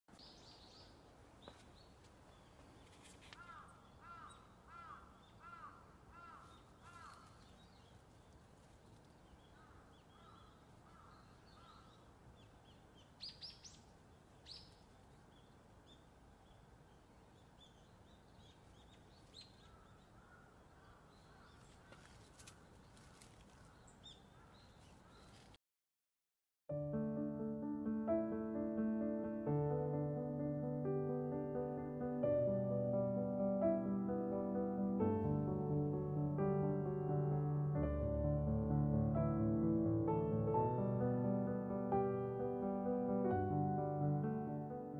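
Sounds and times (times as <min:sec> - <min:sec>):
small birds chirping: 0:00.1 - 0:25.6
crow cawing: 0:03.4 - 0:07.4, 0:09.6 - 0:11.9, 0:19.7 - 0:22.1.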